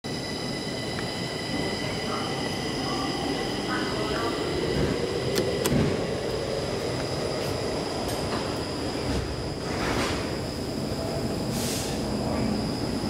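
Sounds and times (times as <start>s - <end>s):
elevator low rumble: 0.1s - 13.0s.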